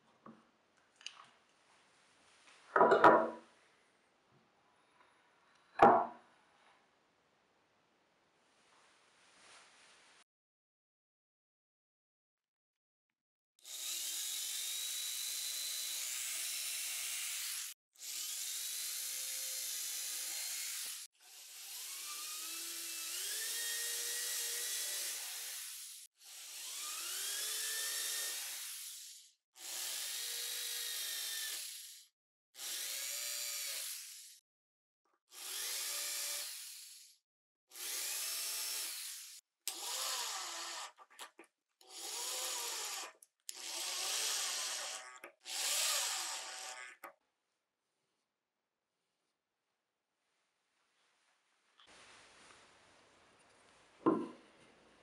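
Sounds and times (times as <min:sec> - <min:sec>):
electric drill whining: 0:13.6 - 0:32.0, 0:32.6 - 0:34.4, 0:35.3 - 0:37.1, 0:37.7 - 0:41.0, 0:41.8 - 0:47.1.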